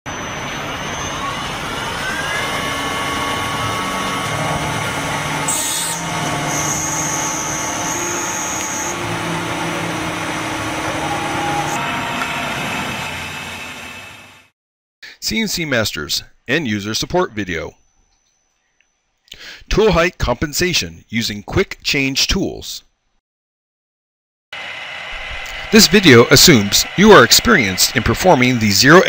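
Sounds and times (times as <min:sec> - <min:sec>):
machine tool whining: 0:00.1 - 0:14.5, 0:24.6 - 0:29.0.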